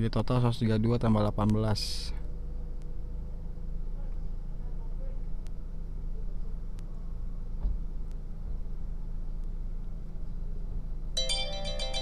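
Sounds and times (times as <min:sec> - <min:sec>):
car idling: 0:00.0 - 0:12.0
faint ticks: 0:02.7 - 0:03.0
phone electronic alert tone: 0:11.2 - 0:12.0.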